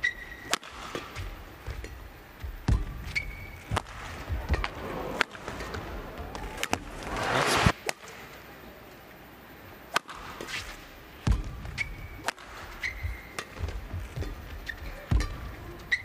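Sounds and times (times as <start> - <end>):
racket hitting shuttlecock: 0.0 - 8.2, 9.9 - 15.6
crowd noise: 3.0 - 9.8
shoe squeaks on court: 11.7 - 13.4.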